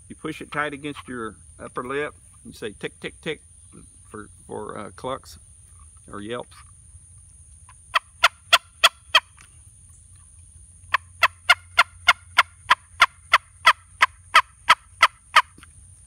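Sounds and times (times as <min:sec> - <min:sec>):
turkey call clucks and yelps: 0:07.9 - 0:09.4, 0:10.9 - 0:15.6.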